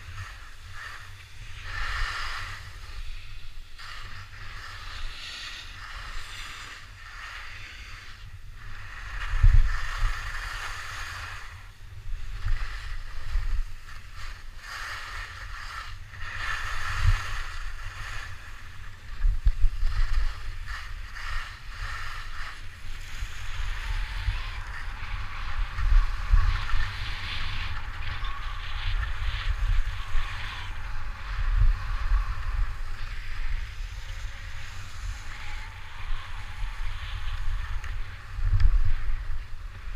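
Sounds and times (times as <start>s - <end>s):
skis carving over packed snow: 0.0s - 39.9s
wind buffeting microphone: 15.4s - 39.9s.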